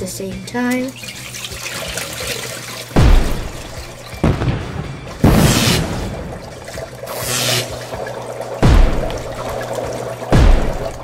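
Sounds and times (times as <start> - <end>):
background music: 0.0 - 11.0
cartoon booming hits: 3.0 - 6.8, 8.6 - 9.4, 10.3 - 11.0.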